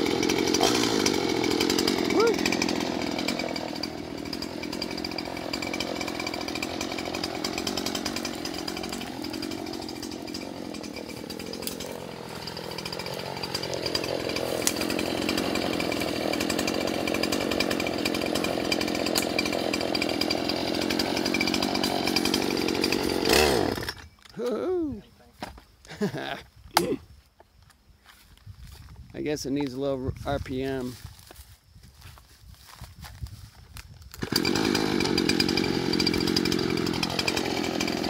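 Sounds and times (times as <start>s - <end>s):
chainsaw cutting log: 0.0s - 24.1s, 34.1s - 38.0s
chainsaw running: 0.0s - 24.1s, 34.1s - 38.0s.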